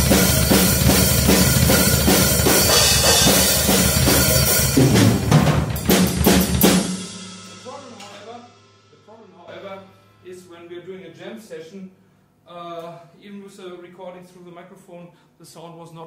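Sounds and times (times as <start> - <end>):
cymbals and snare: 0.0 - 10.3
double bass drum kick pattern: 0.0 - 10.4.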